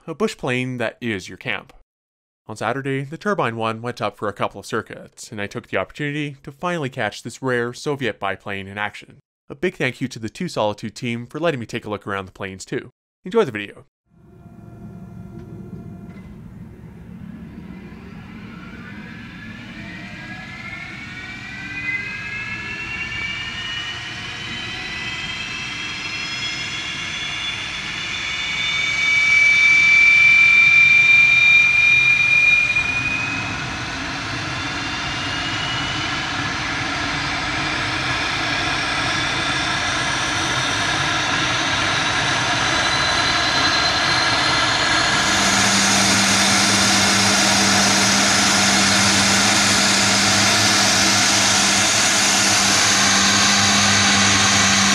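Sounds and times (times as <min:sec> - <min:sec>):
turboprop engine whine: 0:14.1 - 0:54.9.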